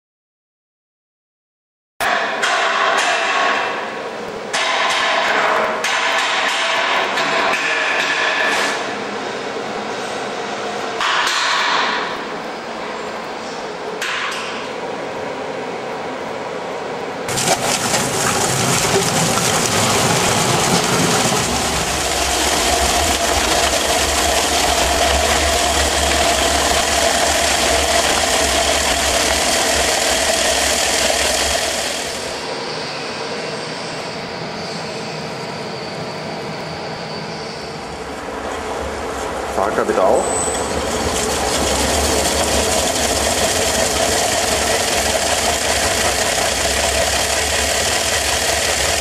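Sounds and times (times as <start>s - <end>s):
food cutter machine running: 17.3s - 32.4s, 40.5s - 49.0s.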